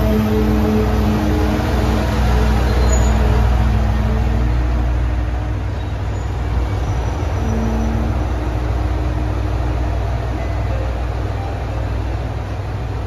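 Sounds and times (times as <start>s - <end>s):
railcar diesel engine rumbling: 0.0s - 13.0s.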